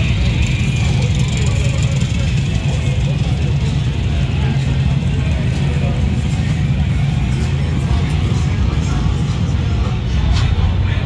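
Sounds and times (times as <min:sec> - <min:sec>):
motorcycle engines rumbling: 0:00.0 - 0:11.0.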